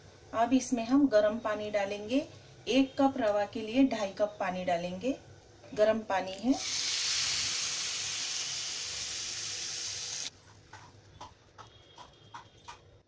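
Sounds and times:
water hissing into hot wok: 6.5 - 10.3.

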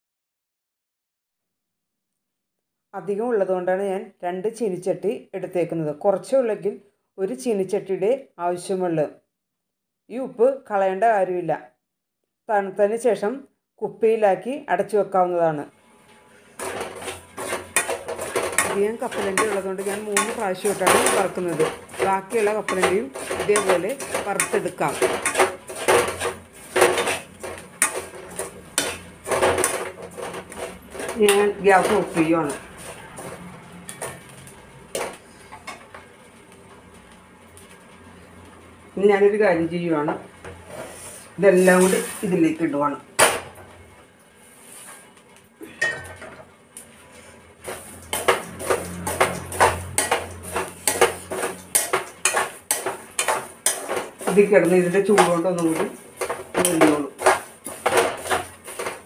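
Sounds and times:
spoon stirring nuts in salt: 16.4 - 35.5, 47.6 - 59.0.

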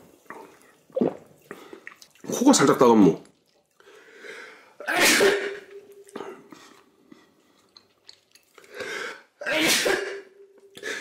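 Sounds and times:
man sneezing: 4.8 - 5.7, 9.4 - 10.3.

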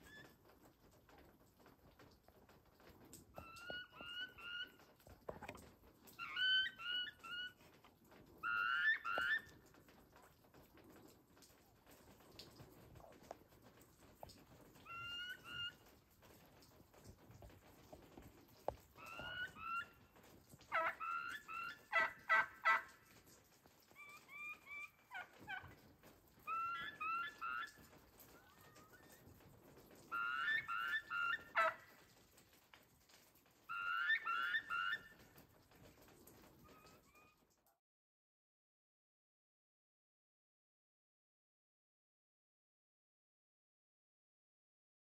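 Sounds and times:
turkeys calling: 3.3 - 10.3, 14.6 - 16.5, 18.1 - 23.3, 23.9 - 29.3, 30.1 - 32.2, 33.7 - 35.4, 36.5 - 37.4.

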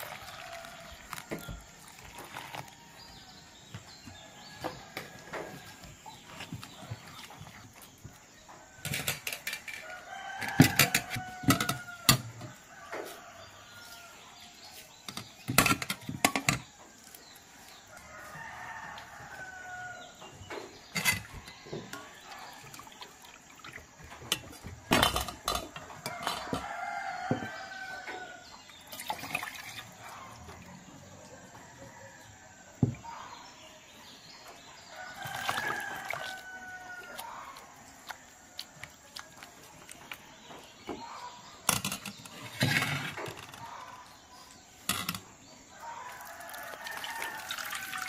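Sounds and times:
metal bowls clattering: 8.8 - 12.3, 15.1 - 16.7, 20.9 - 21.5, 24.2 - 26.7, 41.6 - 43.9
rooster crowing: 9.8 - 14.2, 17.9 - 20.2, 26.0 - 28.4, 34.9 - 37.6, 45.7 - 48.0.

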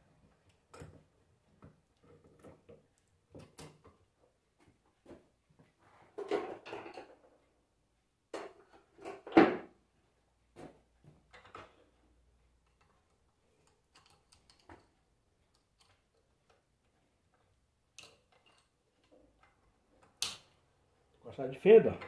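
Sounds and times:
screwdriver clicking and scraping: 13.6 - 16.7, 18.0 - 20.5
metal tools clattering: 18.0 - 18.8.

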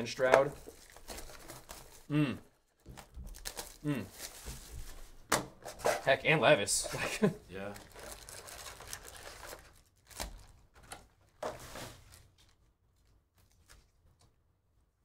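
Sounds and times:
foil packs rustling: 0.2 - 2.1, 6.7 - 12.6.

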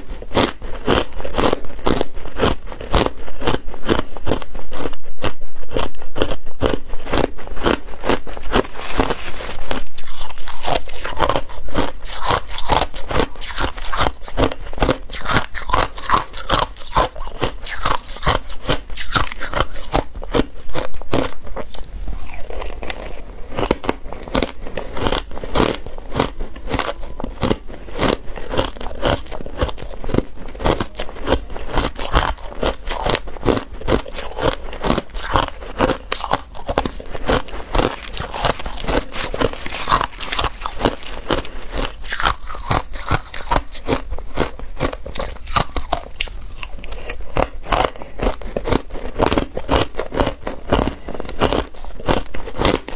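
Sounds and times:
ice being chewed: 0.0 - 52.9.

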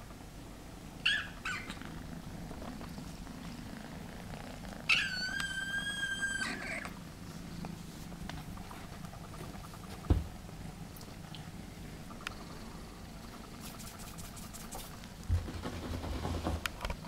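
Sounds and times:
kittens purring: 0.9 - 17.0
kitten mewing: 4.6 - 7.0.

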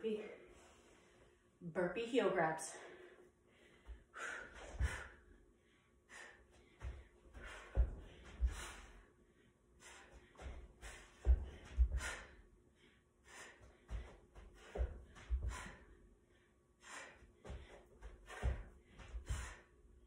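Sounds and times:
person breathing hard: 2.8 - 19.8
dull thuds on rug-covered floor: 6.8 - 8.7, 10.4 - 12.1.

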